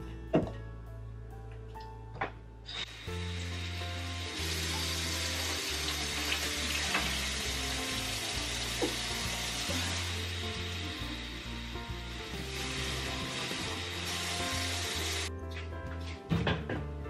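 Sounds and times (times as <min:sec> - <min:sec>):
soft background music: 0:00.0 - 0:17.0
faucet running into metal sink: 0:03.2 - 0:10.4.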